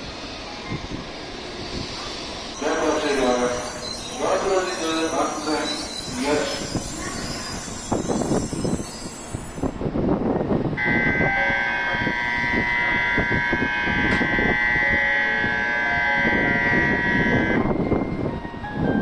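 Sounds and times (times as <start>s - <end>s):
train and platform noise: 0.0s - 19.0s
station departure bell ringing: 2.6s - 19.0s.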